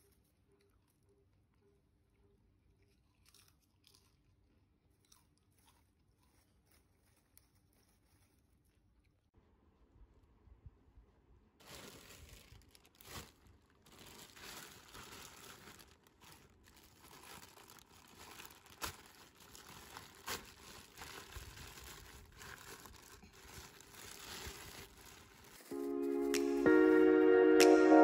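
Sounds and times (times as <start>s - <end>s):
plastic bag crinkling and rustling: 11.6s - 26.1s.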